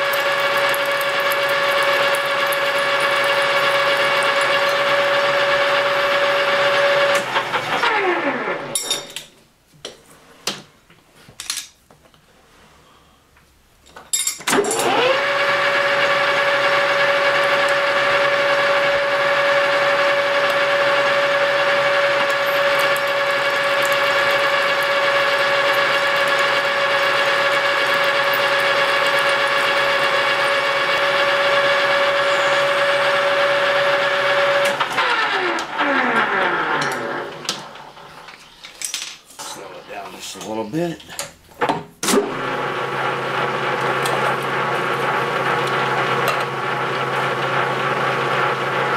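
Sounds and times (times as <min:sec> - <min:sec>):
metal lathe gear whine: 0:00.0 - 0:07.0, 0:16.6 - 0:35.4
drill boring into workpiece: 0:00.0 - 0:08.5, 0:14.5 - 0:37.5.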